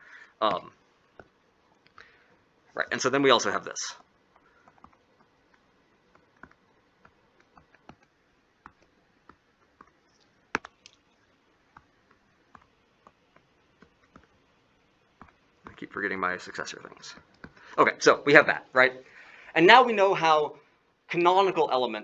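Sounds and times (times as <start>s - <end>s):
stylus tapping on tablet screen: 4.0s - 15.9s.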